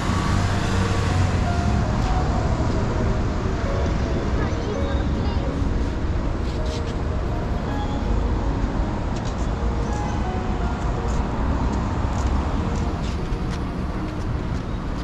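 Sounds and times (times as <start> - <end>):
vehicle rumble in motion: 0.0 - 15.0.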